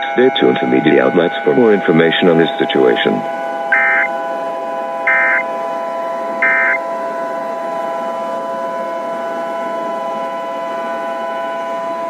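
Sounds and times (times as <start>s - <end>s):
buzzy digital chirps: 3.7s - 4.1s, 5.1s - 5.4s, 6.4s - 6.8s
held tones: 3.7s - 4.1s, 5.1s - 5.4s, 6.4s - 6.8s.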